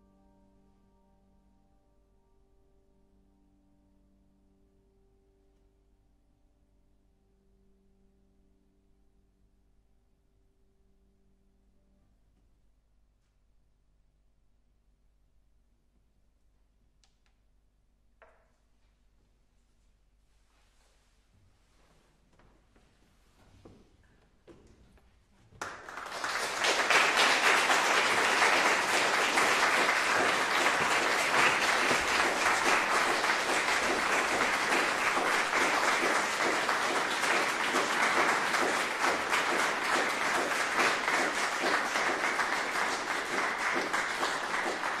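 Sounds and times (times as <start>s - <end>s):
audience applause: 25.6s - 45.0s.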